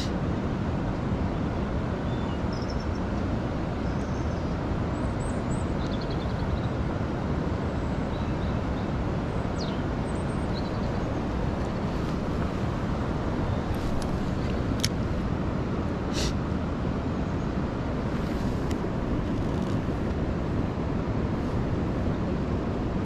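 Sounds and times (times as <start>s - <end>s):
river rushing: 0.0s - 23.0s
faint bird chirps: 2.1s - 3.0s.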